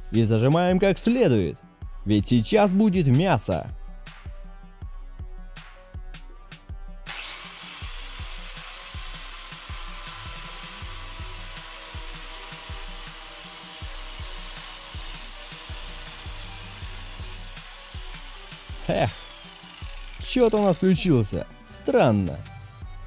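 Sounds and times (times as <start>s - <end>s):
grinder disc cutting glass and metal: 7.1s - 21.5s
angle grinder whine: 7.1s - 21.7s.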